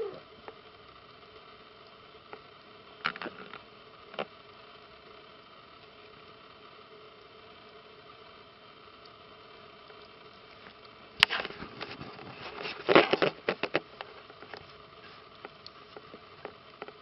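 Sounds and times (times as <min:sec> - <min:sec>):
rustling and scratchy clicking: 0:02.3 - 0:04.4, 0:10.5 - 0:17.0.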